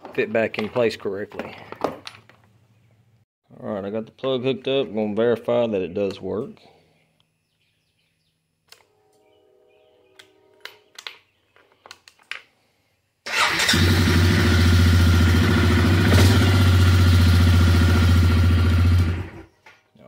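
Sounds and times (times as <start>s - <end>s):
atv engine starting and idling: 13.3s - 19.5s.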